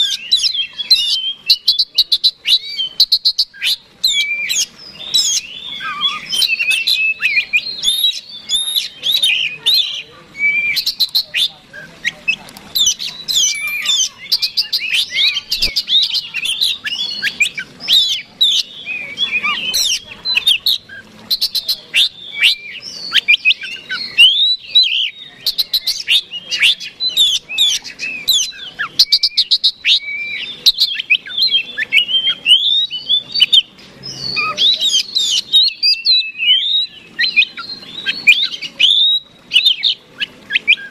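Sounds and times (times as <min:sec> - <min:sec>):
bird singing whistles and chatter: 0:00.0 - 0:40.9.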